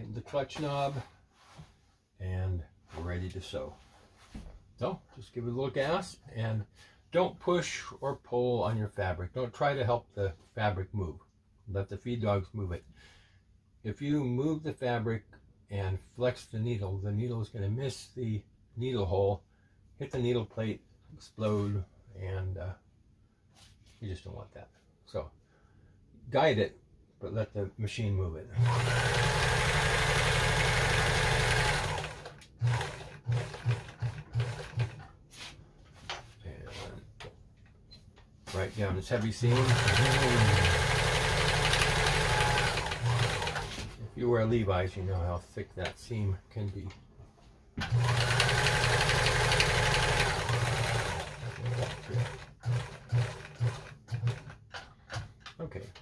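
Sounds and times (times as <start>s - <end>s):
sewing machine stitching: 28.6s - 35.1s, 39.4s - 43.9s, 47.8s - 54.9s.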